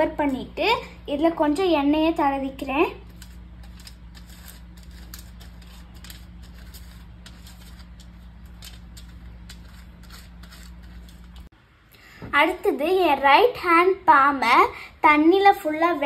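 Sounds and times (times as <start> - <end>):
pastry brush tapping on foil: 3.0 - 11.5.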